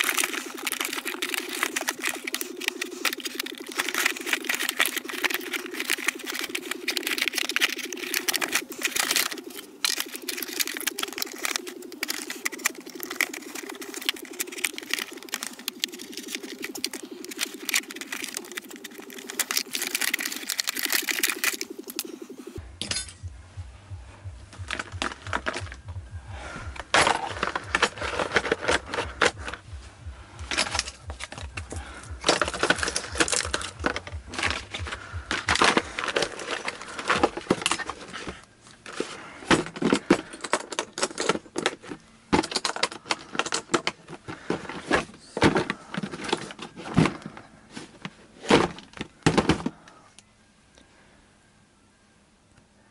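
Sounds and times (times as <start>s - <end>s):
plastic case clicks and rattles: 0.0s - 22.1s, 30.5s - 38.3s, 38.9s - 47.4s.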